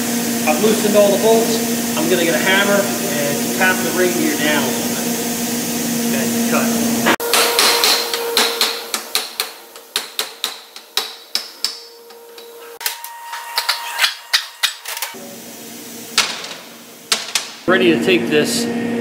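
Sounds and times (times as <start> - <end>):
hammer tapping metal: 7.2 - 14.8.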